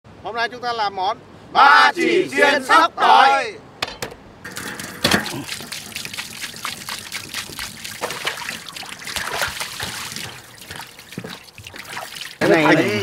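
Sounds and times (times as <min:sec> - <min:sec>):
water trickling and splashing: 0:04.4 - 0:13.0.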